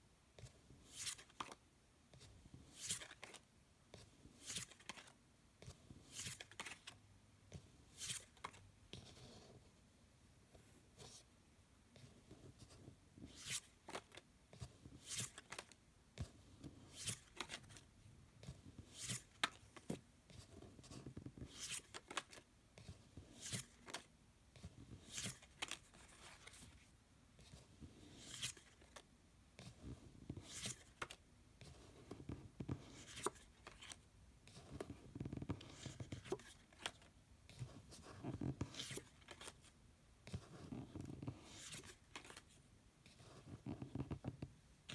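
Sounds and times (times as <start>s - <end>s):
rustling of fingers and cards: 0.5s - 9.6s, 12.0s - 44.9s.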